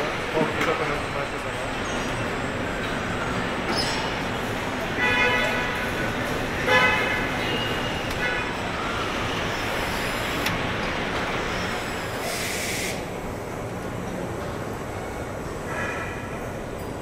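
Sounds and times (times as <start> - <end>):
short high hiss: 12.2 - 13.0.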